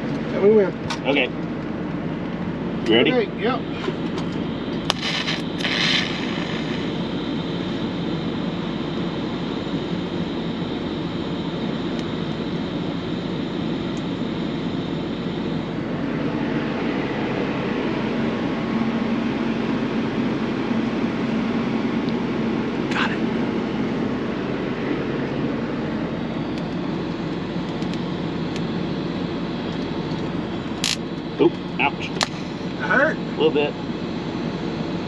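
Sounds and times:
engine drone: 0.0 - 35.0
high hiss: 4.9 - 6.9.

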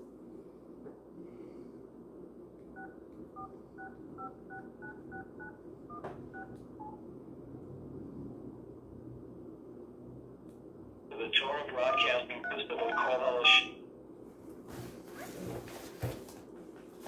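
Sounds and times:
phone keypad beeps: 2.8 - 7.0, 12.4 - 13.1.

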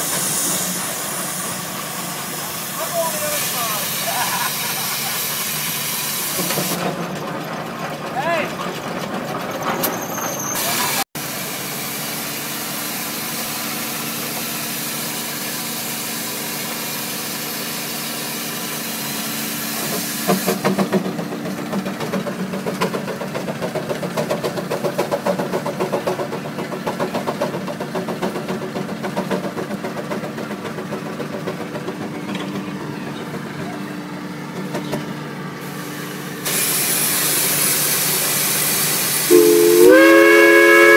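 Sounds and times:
loud hiss of escaping steam: 0.0 - 6.8, 10.6 - 20.6, 35.6 - 40.9
steam engine exhaust chuffs: 35.6 - 40.9.

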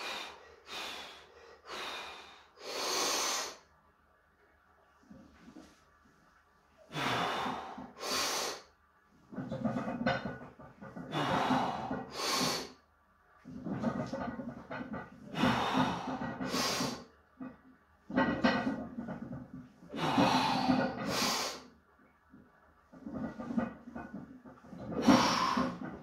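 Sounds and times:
strained breathing: 0.0 - 3.7, 6.9 - 8.7, 11.0 - 12.8, 15.3 - 17.1, 19.9 - 21.7, 25.0 - 25.9.

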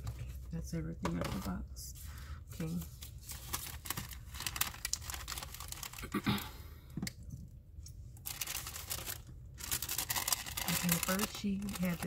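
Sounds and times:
plastic bags crinkling: 2.6 - 6.2, 8.2 - 12.0.

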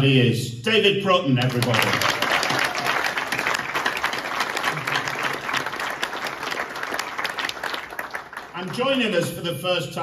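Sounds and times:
audience applauding: 1.4 - 9.3.

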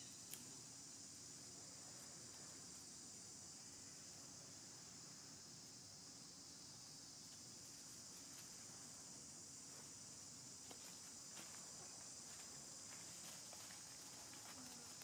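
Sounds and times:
insect chorus buzzing: 0.0 - 15.0
crackles of dry leaf litter: 10.6 - 15.0.

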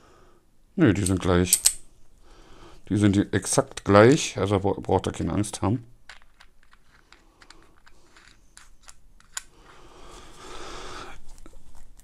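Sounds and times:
tank parts scraping when screwed: 6.1 - 9.8.

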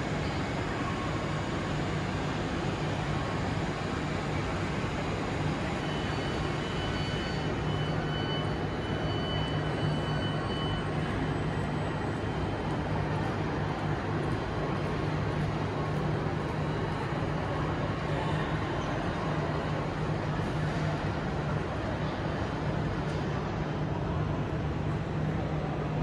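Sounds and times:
train station hum and rumble: 0.0 - 26.0
faint high whine: 0.1 - 12.6.

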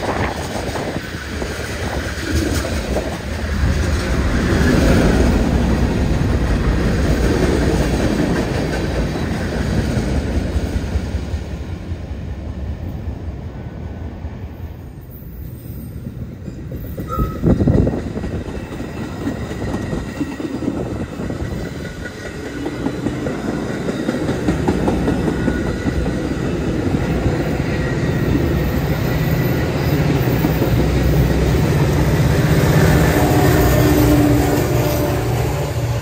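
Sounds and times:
train wheels clattering on rails: 0.0 - 11.5, 16.0 - 36.0
diesel locomotive rumble: 16.0 - 36.0.

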